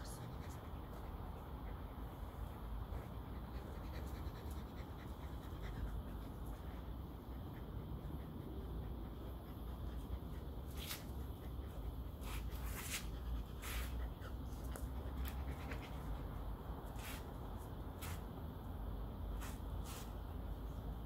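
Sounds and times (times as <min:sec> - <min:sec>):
brush swishing through dog fur: 0:10.6 - 0:11.4, 0:12.1 - 0:15.4, 0:16.9 - 0:18.4, 0:19.3 - 0:20.4.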